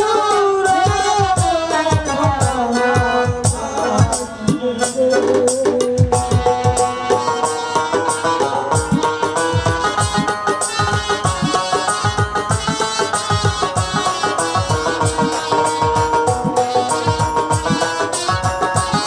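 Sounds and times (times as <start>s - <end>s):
hand drum beating: 0.7s - 19.0s
sliding folk melody: 4.6s - 19.0s.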